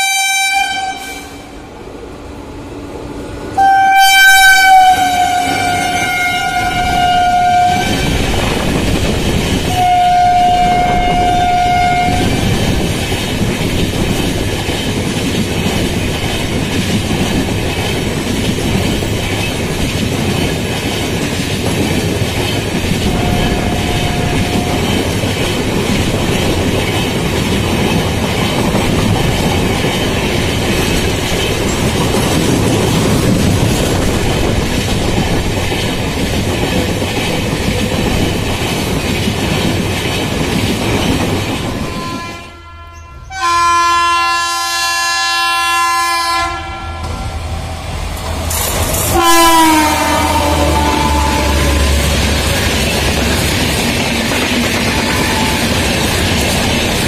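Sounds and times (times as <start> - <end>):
locomotive air horn: 0.0 - 1.5, 3.6 - 8.2, 9.7 - 12.5, 23.0 - 25.1, 41.8 - 47.4, 49.1 - 52.6, 55.0 - 55.7
train wheels rattling on rails: 0.0 - 57.0.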